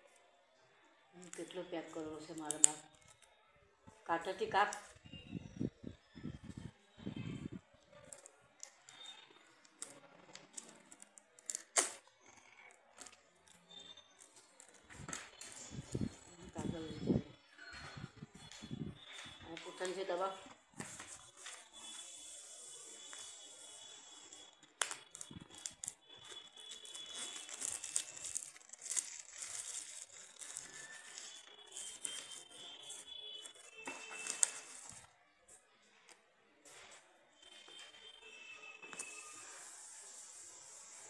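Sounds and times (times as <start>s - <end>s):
scissors cutting cellophane: 1.2s - 3.3s, 8.0s - 16.9s, 19.6s - 35.1s, 38.8s - 41.0s
cellophane crinkling: 18.4s - 35.1s.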